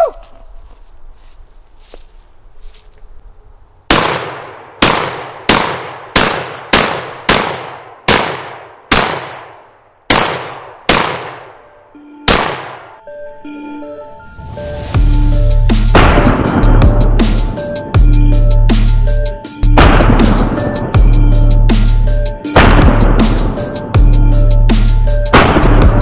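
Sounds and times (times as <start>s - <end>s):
shotgun shots with echo: 3.9s - 9.5s, 10.1s - 11.5s, 12.3s - 12.8s, 19.8s - 20.8s, 22.6s - 23.7s, 25.4s - 26.0s.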